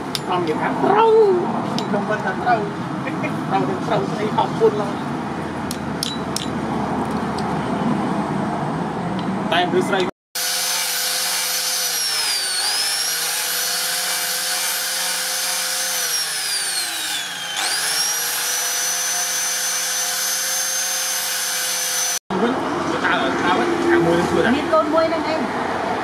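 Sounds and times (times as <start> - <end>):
angle grinder sanding: 10.4 - 22.2.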